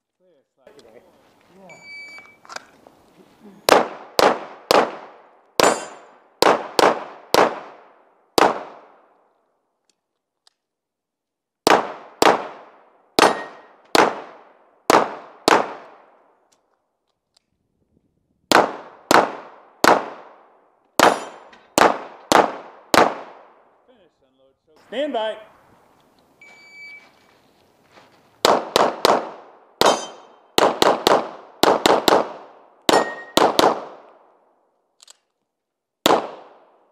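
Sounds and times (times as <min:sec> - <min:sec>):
pistol shots: 0:03.7 - 0:09.1, 0:11.6 - 0:16.2, 0:18.5 - 0:23.7, 0:28.4 - 0:34.3, 0:36.0 - 0:36.8.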